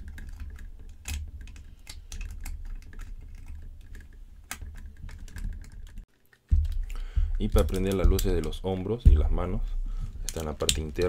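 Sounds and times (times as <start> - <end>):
plastic figure clicks and taps: 3.9 - 9.3
low handling rumble: 6.5 - 11.0.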